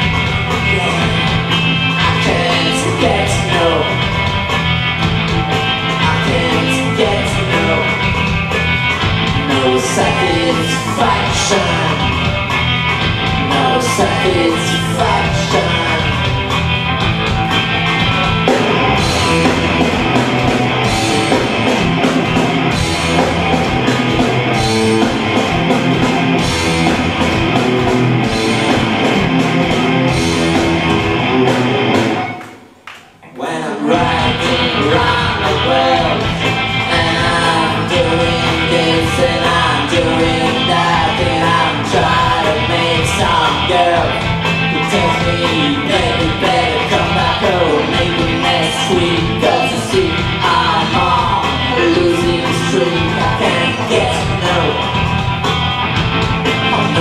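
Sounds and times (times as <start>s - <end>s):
drums: 0.0s - 57.0s
guitar: 0.0s - 57.0s
man singing: 0.4s - 4.2s, 5.8s - 8.3s, 9.3s - 12.3s, 13.2s - 16.4s, 33.3s - 55.1s, 56.6s - 57.0s.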